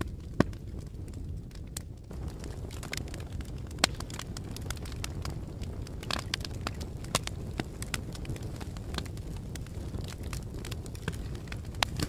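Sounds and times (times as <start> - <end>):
fire crackling and popping: 0.0 - 12.0.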